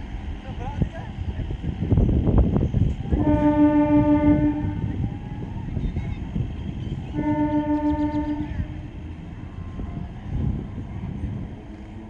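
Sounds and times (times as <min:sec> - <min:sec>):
train horn blasts: 0:03.0 - 0:05.2, 0:06.9 - 0:09.0.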